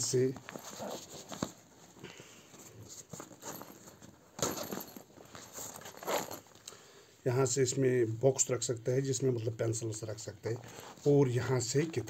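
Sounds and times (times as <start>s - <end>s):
nylon backpack rustling: 0.4s - 2.0s, 2.8s - 6.6s.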